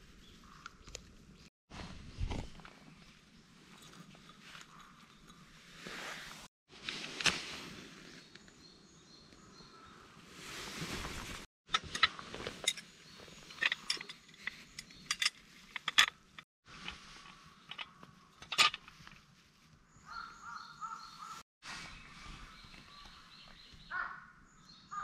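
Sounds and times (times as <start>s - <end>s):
metal and glass clinks: 13.5s - 16.1s.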